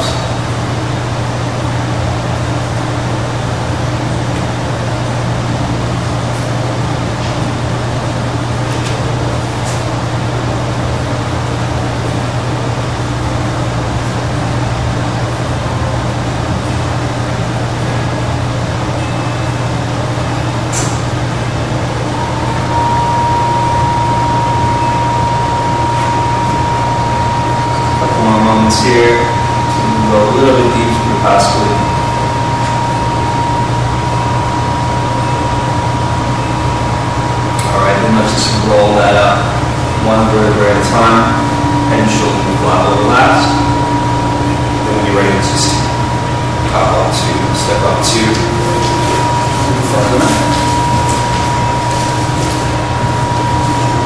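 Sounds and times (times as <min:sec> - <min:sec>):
low hum: 0:00.0 - 0:54.0
thin high tone: 0:22.0 - 0:54.0.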